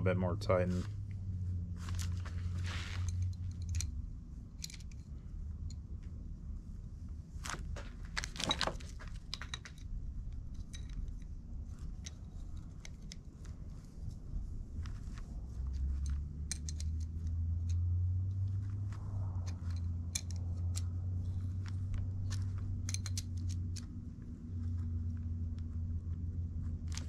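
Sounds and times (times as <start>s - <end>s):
low steady rumble: 0.0s - 27.0s
metallic clinks of wrench: 15.9s - 17.8s, 22.3s - 23.8s.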